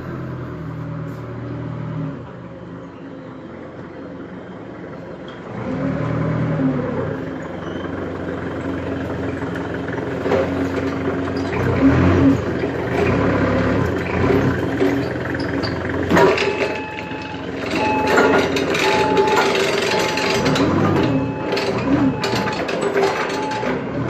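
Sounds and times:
forklift engine running: 0:00.0 - 0:24.0.

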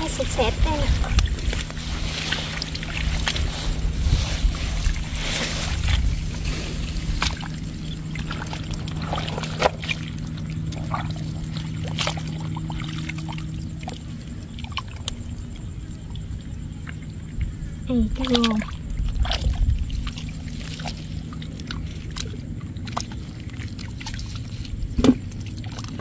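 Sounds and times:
hands sloshing and squelching in mud: 0:00.0 - 0:26.0
sharp wet splats: 0:07.2 - 0:13.2.

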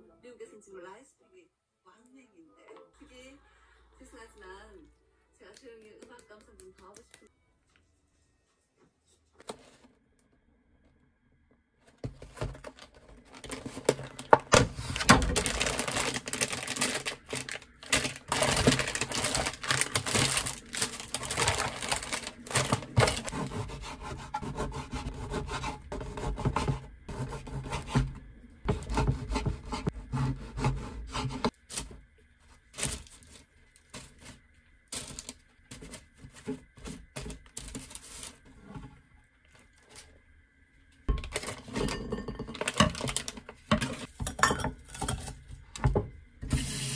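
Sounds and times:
plastic packaging crinkling: 0:12.0 - 0:23.3, 0:32.6 - 0:38.5, 0:42.5 - 0:44.1
bread knife sawing crusty bread: 0:23.3 - 0:28.1, 0:28.7 - 0:31.5.

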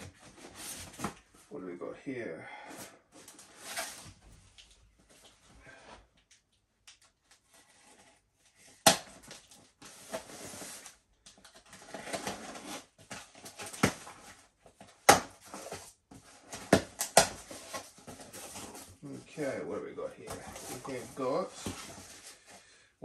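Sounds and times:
cardboard and tape scraping: 0:09.8 - 0:11.0, 0:11.6 - 0:19.5, 0:20.2 - 0:22.6.

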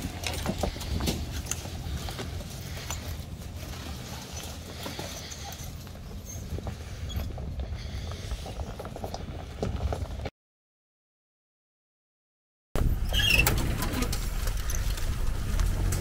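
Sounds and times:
gravel clicks and crackles: 0:00.0 - 0:10.3, 0:13.6 - 0:16.0
off-road vehicle rumbling: 0:00.0 - 0:10.3, 0:12.8 - 0:16.0.

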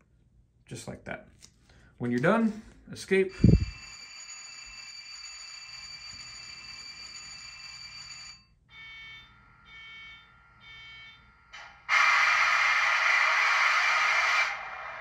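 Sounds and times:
electronic locomotive sounds: 0:09.4 - 0:15.0.

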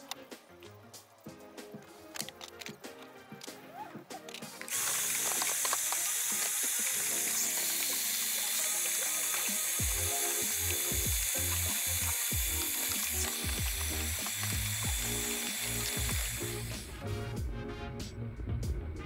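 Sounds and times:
shop vacuum running: 0:04.7 - 0:17.0.

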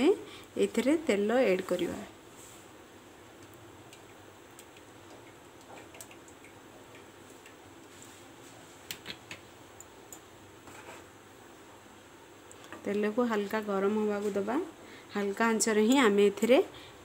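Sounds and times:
bottle ticks and clicks: 0:03.4 - 0:07.6.

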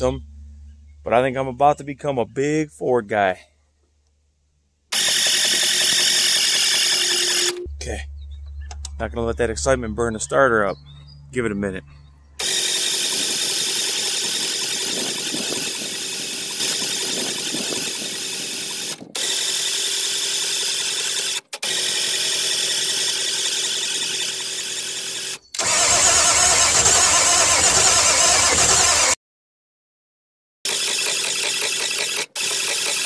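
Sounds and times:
diesel engine cranking: 0:04.9 - 0:29.2.

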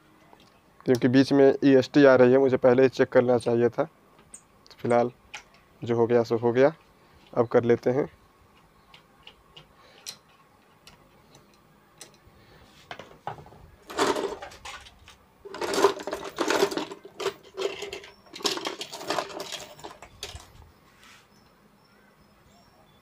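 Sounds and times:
metal parts clattering: 0:13.8 - 0:20.6.

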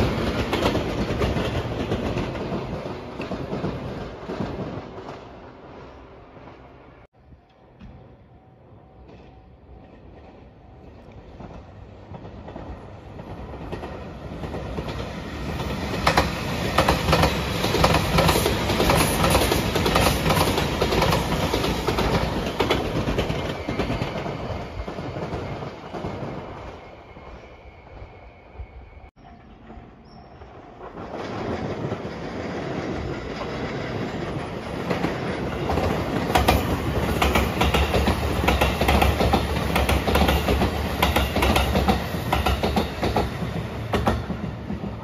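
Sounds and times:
train passing at speed: 0:00.0 - 0:45.0.

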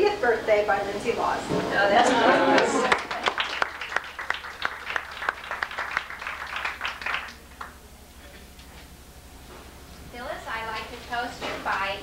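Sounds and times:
people applauding: 0:02.1 - 0:07.8.

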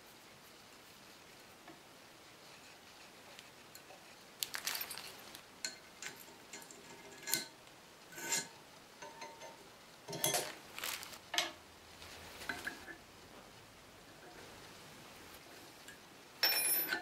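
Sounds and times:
metal clinks on wooden bench: 0:16.4 - 0:17.0.

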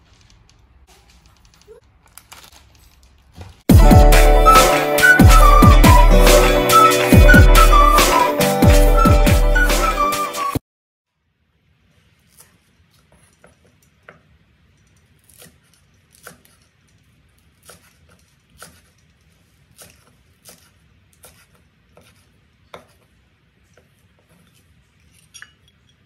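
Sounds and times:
knife chopping on wooden board: 0:15.3 - 0:16.6, 0:17.6 - 0:18.9, 0:19.8 - 0:23.1.

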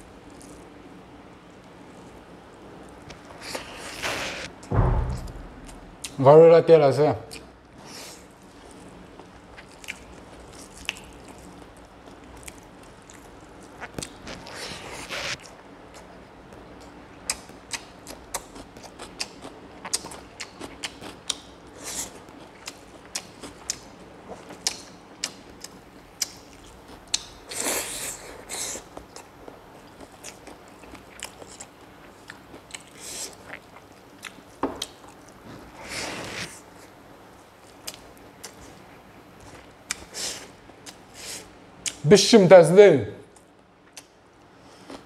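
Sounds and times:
person chewing with wet smacks: 0:08.8 - 0:14.4, 0:15.4 - 0:35.4, 0:37.6 - 0:41.1.

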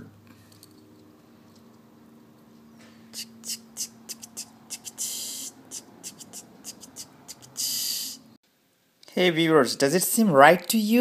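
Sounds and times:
toy engine ticking: 0:03.2 - 0:08.2
toy engine hissing: 0:03.2 - 0:08.4.

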